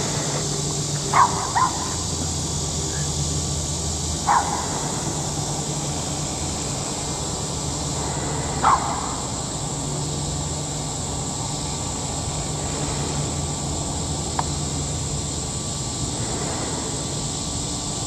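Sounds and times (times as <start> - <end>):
steady low hum: 0.0 - 18.0
dog barking: 1.1 - 2.0, 4.3 - 4.8, 8.6 - 9.0.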